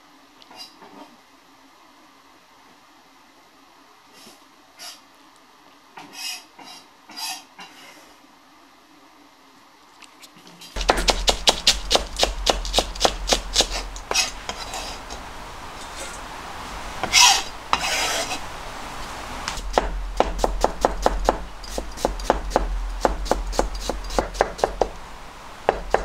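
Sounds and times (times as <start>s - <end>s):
soft rustles: 10.2s - 19.6s
knife chopping cabbage: 10.8s - 15.2s, 19.6s - 25.0s
low steady hum: 10.8s - 26.0s.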